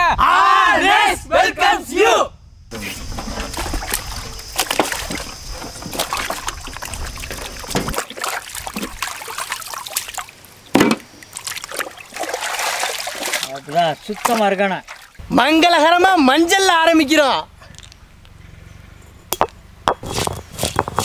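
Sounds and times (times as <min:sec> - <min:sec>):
water sloshing in a metal pot: 0:03.0 - 0:15.2.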